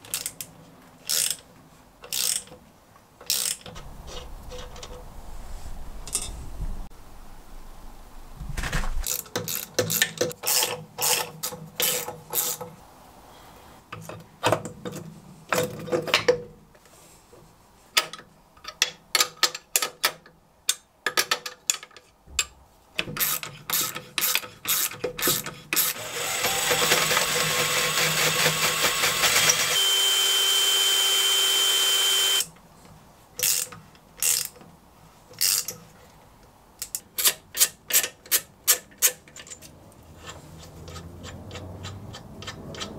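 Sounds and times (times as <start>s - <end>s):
ratchet wrench clicking: 1.1s - 1.4s, 2.1s - 2.5s, 3.2s - 3.8s, 9.1s - 11.2s, 23.2s - 26.0s, 33.4s - 34.6s, 35.4s - 35.7s, 40.2s - 42.9s.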